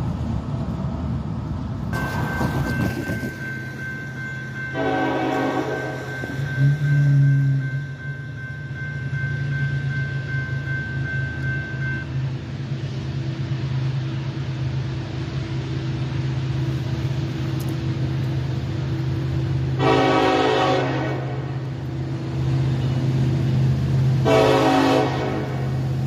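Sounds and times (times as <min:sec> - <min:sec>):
locomotive engine droning: 0:00.0 - 0:26.0
locomotive air horn blasts: 0:04.7 - 0:07.7, 0:19.8 - 0:21.7, 0:24.2 - 0:25.8.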